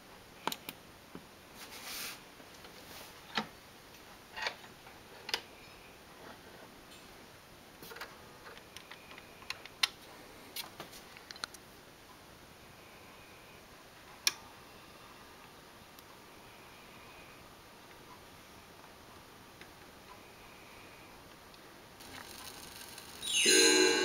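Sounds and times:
faint steady hiss: 0:00.0 - 0:24.0.

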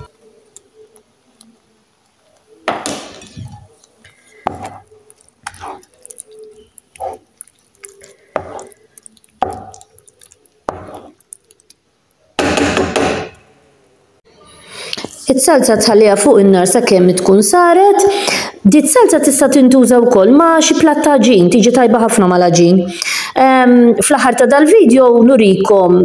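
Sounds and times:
utensil stirring thick sauce: 0:00.2 - 0:12.2.

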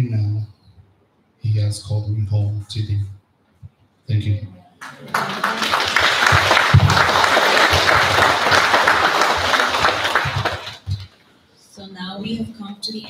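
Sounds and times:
audience applauding: 0:04.8 - 0:11.2.

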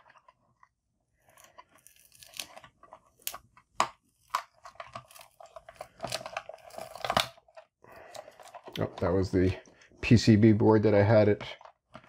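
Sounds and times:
plastic case clicking and creaking: 0:02.3 - 0:09.2, 0:11.4 - 0:12.0.

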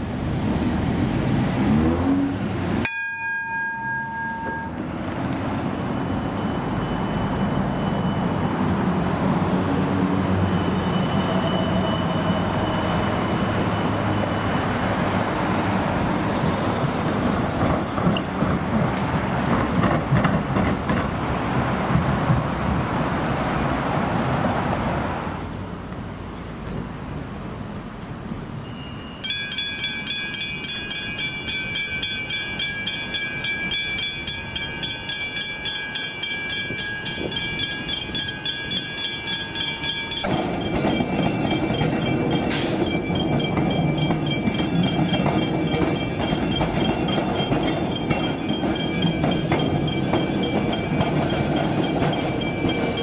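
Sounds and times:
electric train rumbling: 0:00.0 - 0:53.0
level crossing bells ringing: 0:02.8 - 0:08.6, 0:29.0 - 0:53.0
wheel clatter over rails: 0:17.5 - 0:22.8, 0:36.8 - 0:53.0.

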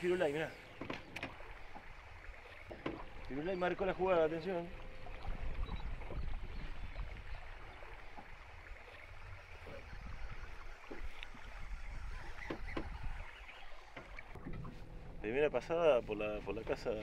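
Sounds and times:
low rumble of wind: 0:00.0 - 0:17.0
water lapping against boat hull: 0:00.0 - 0:17.0.

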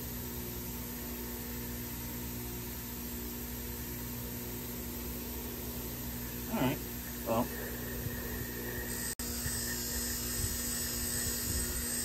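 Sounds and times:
bench grinder wire wheel spinning: 0:07.2 - 0:12.0.

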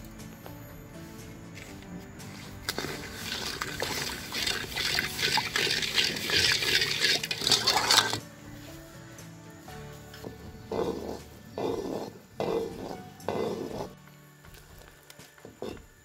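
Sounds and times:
ladle scraping and clinking on pan: 0:02.4 - 0:08.2
syrup sloshing in metal pan: 0:02.5 - 0:08.2.

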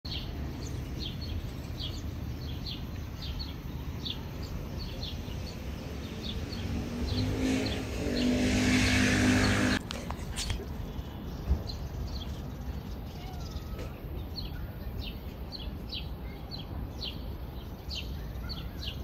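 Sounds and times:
low traffic rumble: 0:00.0 - 0:19.0
small bird chirping: 0:00.1 - 0:09.8, 0:10.6 - 0:19.0
passing vehicle engine: 0:05.0 - 0:10.6.

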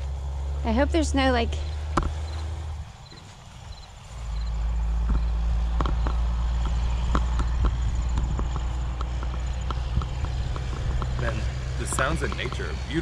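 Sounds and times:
low microphone rumble: 0:00.0 - 0:13.0
footsteps through dry brush: 0:01.6 - 0:05.4.

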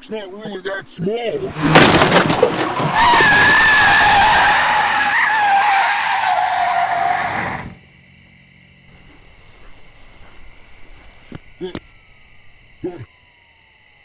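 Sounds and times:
car tyres screeching: 0:01.4 - 0:07.8.

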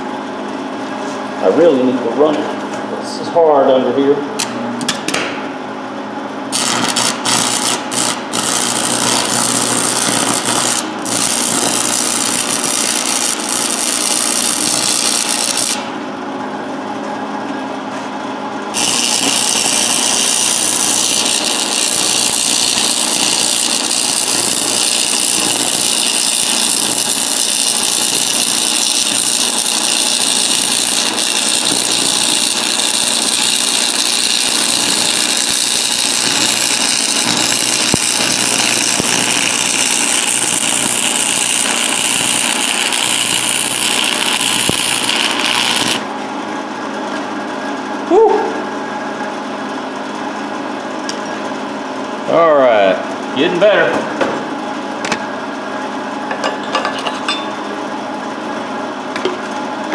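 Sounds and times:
arc welding hiss: 0:06.5 - 0:15.9, 0:18.8 - 0:46.0.

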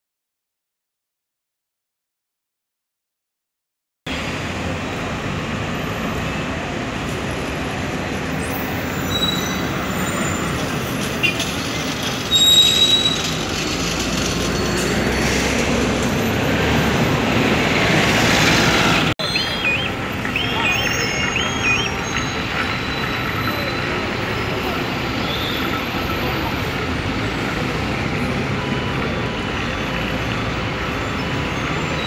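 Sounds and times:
buses and cars passing: 0:04.1 - 0:32.0
high squeals: 0:11.2 - 0:15.5, 0:19.2 - 0:24.4.

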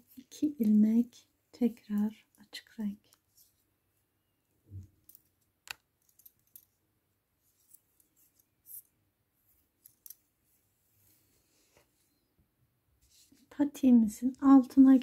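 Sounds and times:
knitting needles clicking: 0:05.1 - 0:06.6.

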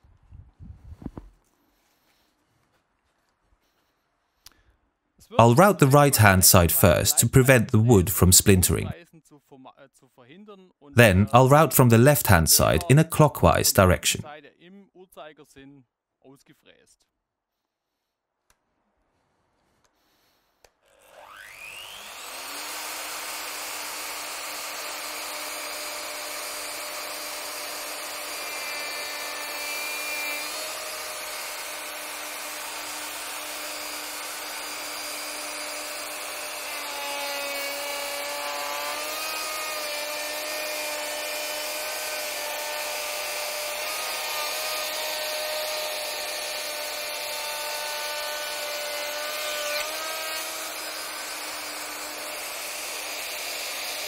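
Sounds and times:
router whining while cutting wood: 0:21.0 - 0:54.0.

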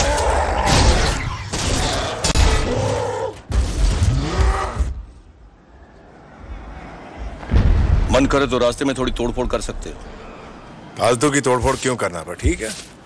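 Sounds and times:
creature roaring and grunting: 0:00.0 - 0:05.1
low rumble: 0:05.4 - 0:10.7.

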